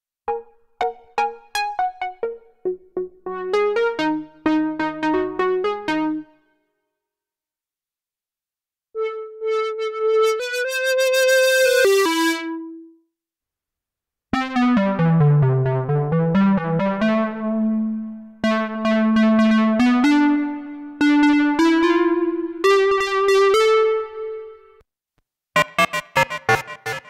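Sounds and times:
synthesizer brass notes: 0:00.8 - 0:06.4, 0:09.0 - 0:12.9, 0:14.4 - 0:24.5, 0:25.6 - 0:27.0.

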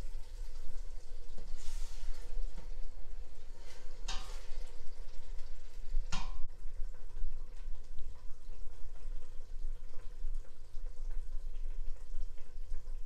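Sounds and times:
food frying in oil: 0:00.0 - 0:13.0
spatula scraping a metal pot: 0:03.4 - 0:04.7.

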